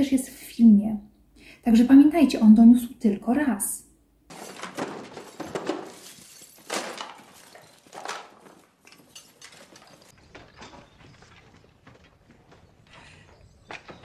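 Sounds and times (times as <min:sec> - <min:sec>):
objects clattering in wooden chest: 0:04.3 - 0:12.1.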